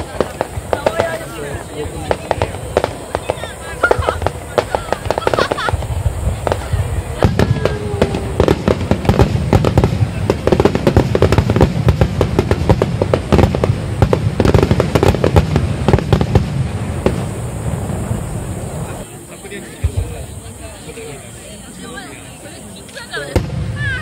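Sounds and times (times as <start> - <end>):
firework shells bursting: 0.0 - 19.0
firework crackling: 0.0 - 24.0.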